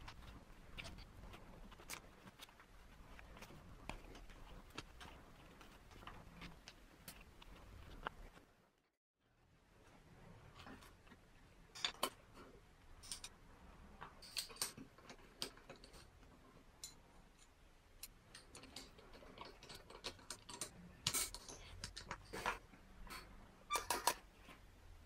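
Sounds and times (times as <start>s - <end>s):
small metal parts clicking: 14.2s - 16.1s.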